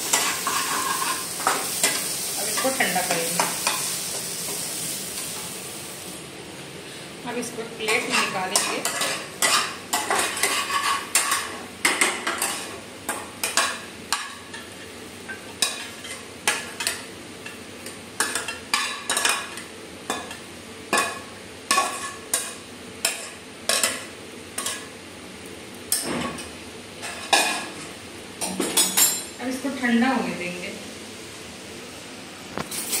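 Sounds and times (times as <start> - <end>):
metal spatula scraping a wok: 0.0 - 2.7, 7.9 - 11.6.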